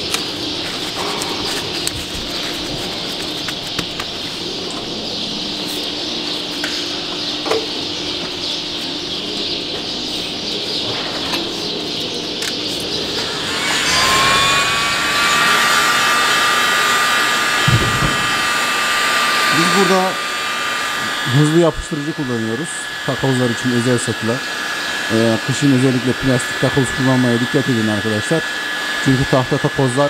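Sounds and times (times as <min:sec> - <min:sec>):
angle grinder whining: 0:12.5 - 0:30.0.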